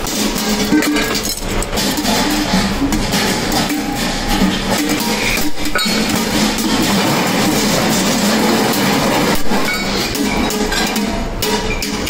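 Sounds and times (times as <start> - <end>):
metal clinking and knocking: 0.0 - 12.0.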